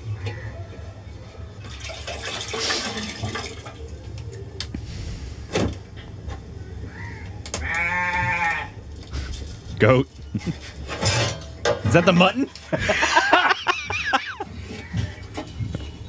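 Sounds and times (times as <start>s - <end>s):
water splashing and trickling: 1.6s - 4.3s.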